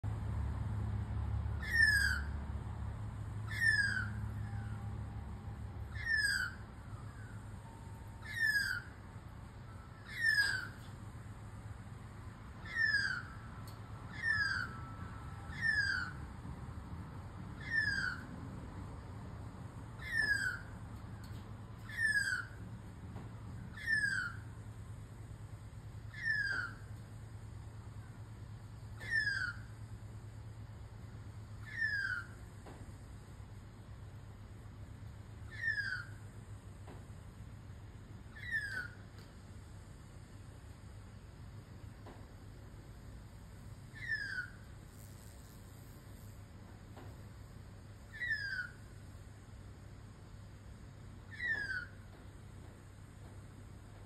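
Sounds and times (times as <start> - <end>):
young magpie squealing call: 1.6 - 2.4, 3.4 - 4.9, 5.9 - 9.0, 9.8 - 10.8, 12.6 - 13.5, 14.1 - 16.2, 17.6 - 18.3, 20.0 - 20.8, 21.8 - 22.6, 23.7 - 24.5, 26.1 - 26.9, 29.0 - 29.7, 31.6 - 32.4, 35.5 - 36.2, 38.3 - 39.0, 43.9 - 44.6, 48.1 - 48.9, 51.3 - 52.0.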